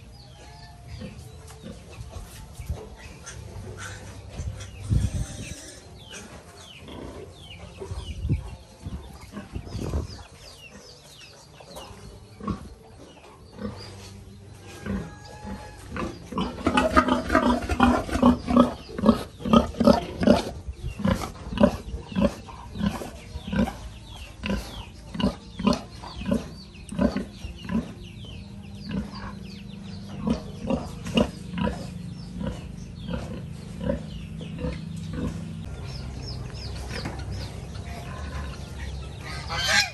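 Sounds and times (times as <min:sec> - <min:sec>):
pigs grunting: 0:14.8 - 0:28.0, 0:28.8 - 0:35.8, 0:36.6 - 0:39.9.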